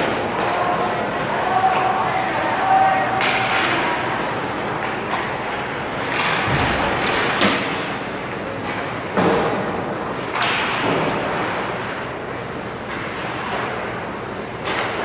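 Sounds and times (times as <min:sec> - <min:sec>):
skates scraping on ice: 0:00.0 - 0:08.0
hockey sticks and puck knocking: 0:00.0 - 0:12.0, 0:12.8 - 0:15.0.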